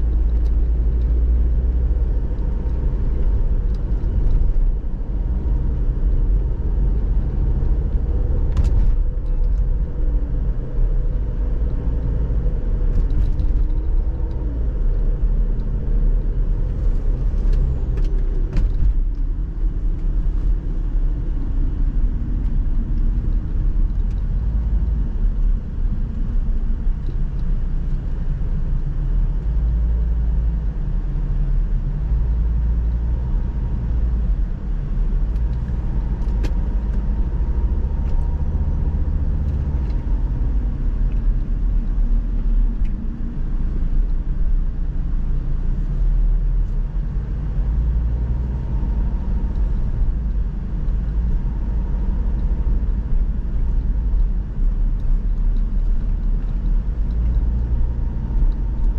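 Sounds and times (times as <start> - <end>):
car engine and tyres rumbling: 0.0 - 58.9.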